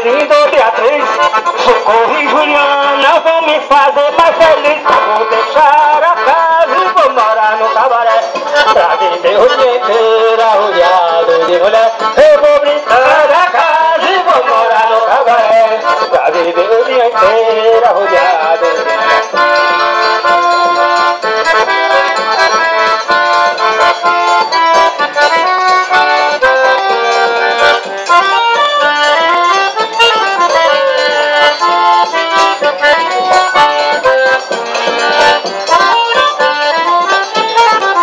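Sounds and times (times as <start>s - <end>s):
accordion melody: 0.0s - 38.0s
person singing: 0.0s - 38.0s.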